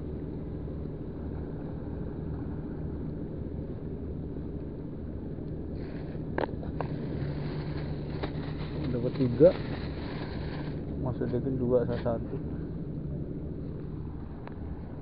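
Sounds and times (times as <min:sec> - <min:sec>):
low engine drone: 0:00.0 - 0:15.0
short rustle: 0:06.8 - 0:10.9.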